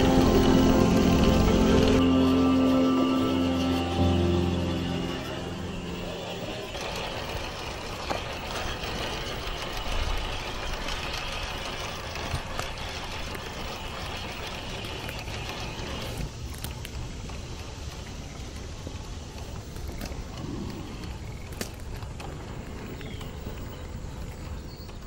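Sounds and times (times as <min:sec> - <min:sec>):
electric motor whine: 0:00.0 - 0:16.7
tires crunching on dirt: 0:00.0 - 0:25.0.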